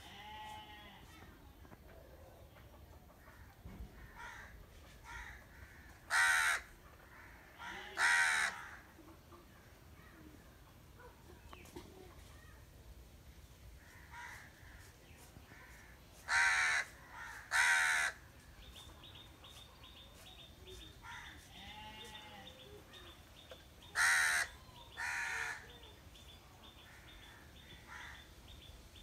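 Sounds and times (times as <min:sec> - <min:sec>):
crow cawing: 0:06.1 - 0:08.8, 0:16.3 - 0:18.2, 0:24.0 - 0:25.6.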